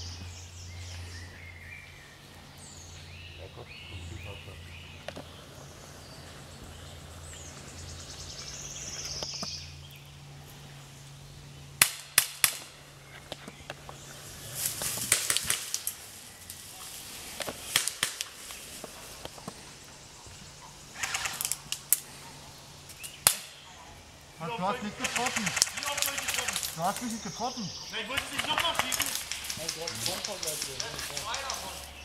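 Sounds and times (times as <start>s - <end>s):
airsoft gun shots: 11.8s - 12.7s, 17.7s - 18.3s, 25.0s - 26.7s.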